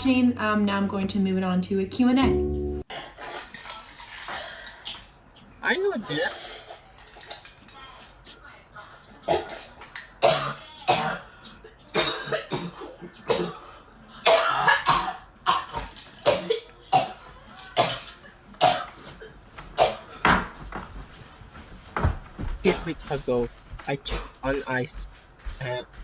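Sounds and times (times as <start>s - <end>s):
woman coughing hard: 9.3s - 11.3s, 11.9s - 20.3s.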